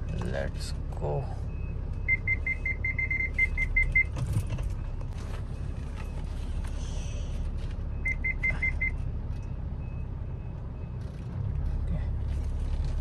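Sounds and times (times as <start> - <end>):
parking sensor short beeps: 1.5 - 5.0, 7.9 - 11.2.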